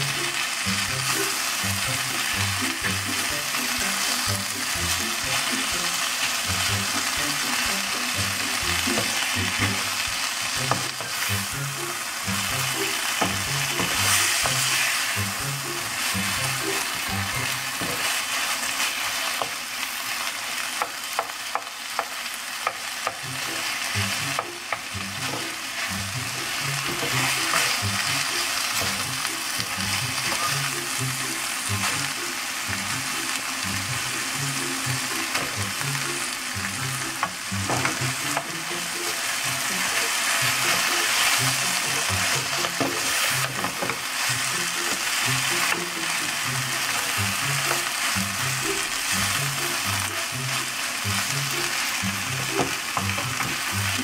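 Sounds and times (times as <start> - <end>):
food sizzling in a frying pan: 0.0 - 54.0
spatula tapping a pan: 8.8 - 9.9, 10.6 - 11.3, 13.0 - 15.0, 17.7 - 18.2, 19.3 - 19.6, 20.7 - 23.5, 24.2 - 25.6, 26.5 - 30.4, 37.1 - 38.6, 40.0 - 44.1, 44.9 - 46.0
spatula stirring and scraping: 24.7 - 30.5.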